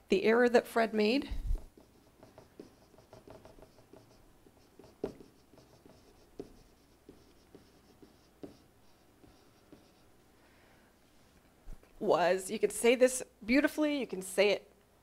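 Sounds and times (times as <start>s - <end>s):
pen tapping tablet: 1.3s - 10.1s
stylus scratching on tablet: 1.5s - 10.2s.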